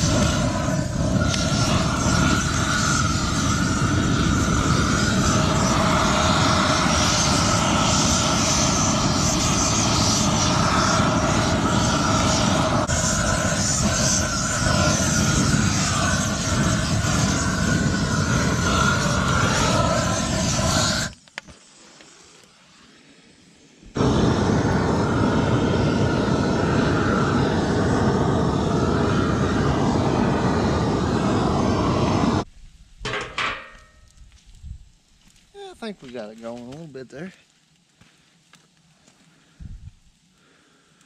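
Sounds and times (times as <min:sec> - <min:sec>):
torch flame roaring: 0:00.0 - 0:21.2, 0:22.6 - 0:33.2.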